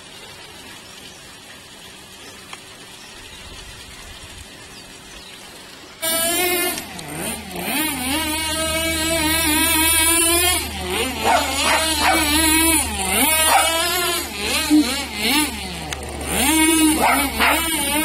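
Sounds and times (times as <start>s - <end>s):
toy car motor whining: 6.0s - 18.0s.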